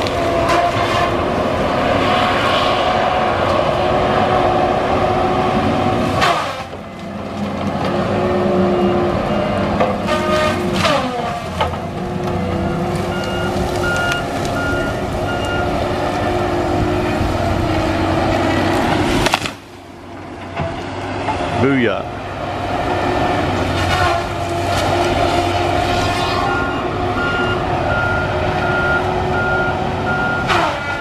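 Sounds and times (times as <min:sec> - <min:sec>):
saw disc cutting trunk: 0:00.0 - 0:01.4, 0:06.0 - 0:08.0, 0:09.8 - 0:16.2, 0:23.4 - 0:26.7, 0:30.4 - 0:31.0
diesel engine running: 0:00.0 - 0:31.0.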